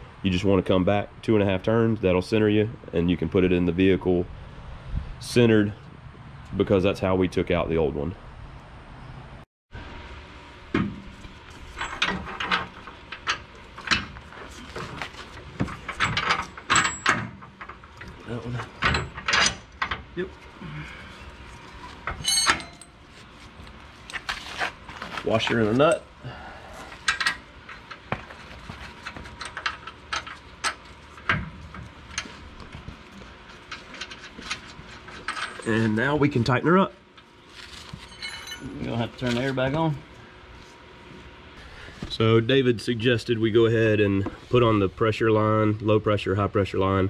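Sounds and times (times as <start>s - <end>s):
metal parts and tools clicking: 22.0s - 23.0s.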